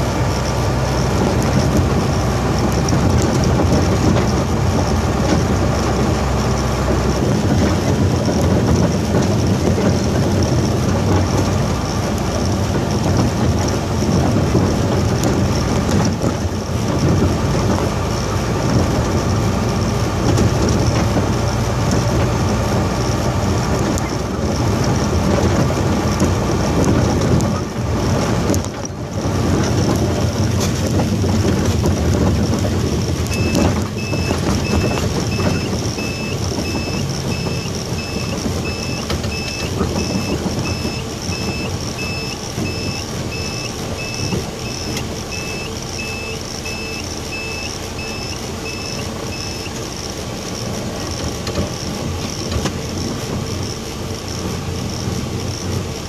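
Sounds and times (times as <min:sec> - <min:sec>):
road noise: 0:00.0 - 0:56.0
truck engine running: 0:00.0 - 0:56.0
electronic beeps: 0:33.3 - 0:49.8.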